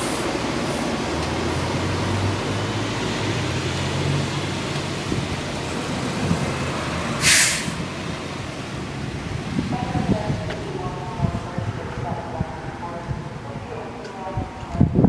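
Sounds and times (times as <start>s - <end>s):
air brakes hissing: 7.2s - 7.8s.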